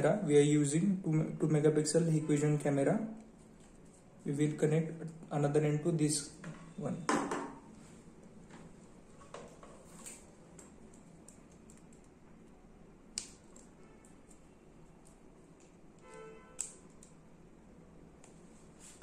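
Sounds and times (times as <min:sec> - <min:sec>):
cable connectors clicking: 0:09.5 - 0:12.2, 0:13.1 - 0:17.2.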